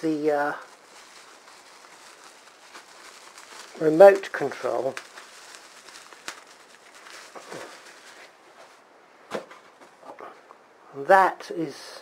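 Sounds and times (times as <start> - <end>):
handling bubble wrap and foam: 0.0 - 9.5.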